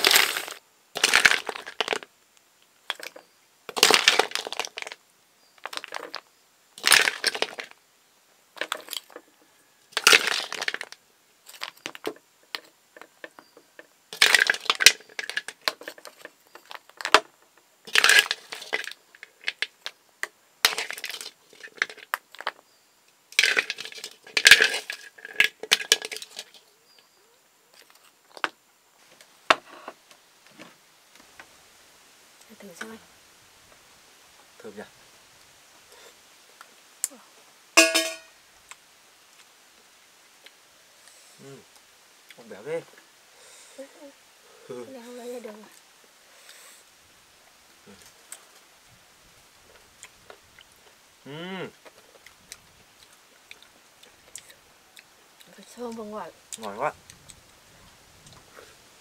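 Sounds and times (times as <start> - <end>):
snail shells clattering: 0.0 - 2.1, 2.9 - 5.0, 5.6 - 6.2, 6.8 - 7.8, 8.6 - 9.3, 9.9 - 20.0, 20.6 - 22.6, 23.3 - 26.7.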